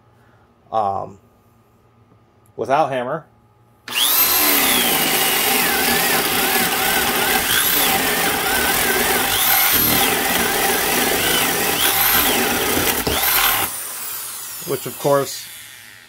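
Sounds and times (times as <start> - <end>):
hammer drill boring through wood: 3.9 - 16.0.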